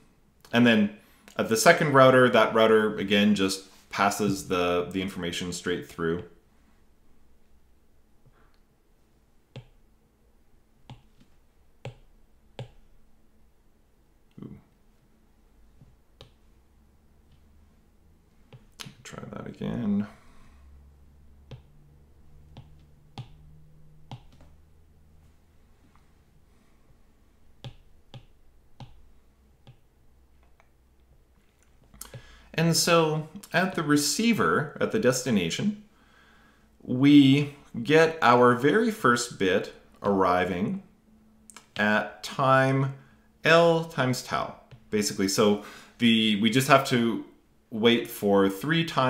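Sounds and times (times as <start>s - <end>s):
stylus tapping on glass screen: 10.9s - 12.8s
stylus tapping on tablet: 10.9s - 12.8s, 15.8s - 16.5s, 21.4s - 21.8s, 22.5s - 23.5s, 24.1s - 24.6s, 27.6s - 29.9s.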